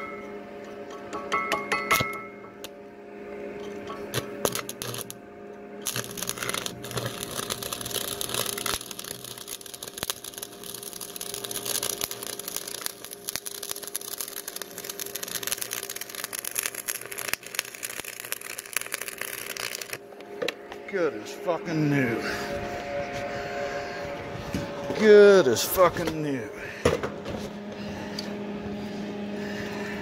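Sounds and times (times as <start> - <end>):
welding arc crackling: 4.1 - 5.2, 5.8 - 20.0.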